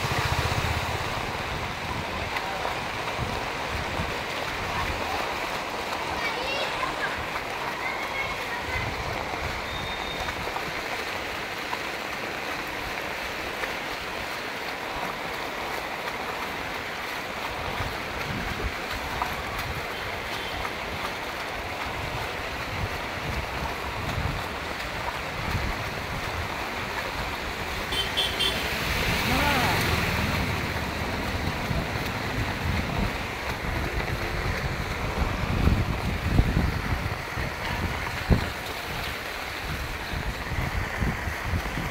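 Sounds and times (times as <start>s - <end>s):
heavy rain on flooded street: 0.0s - 41.9s
low rumbles: 28.7s - 38.5s.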